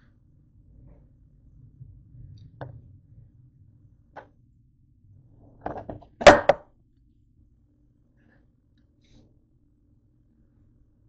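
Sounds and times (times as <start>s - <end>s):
objects knocking on kitchen counter: 5.6s - 6.6s.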